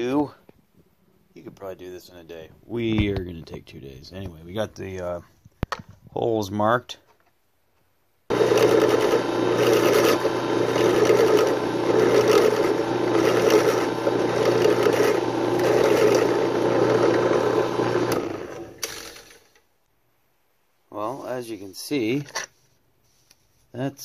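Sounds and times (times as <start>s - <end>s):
motor hum: 8.3s - 19.5s
motor winding down: 8.3s - 19.5s
drill press drilling plastic: 8.3s - 19.6s.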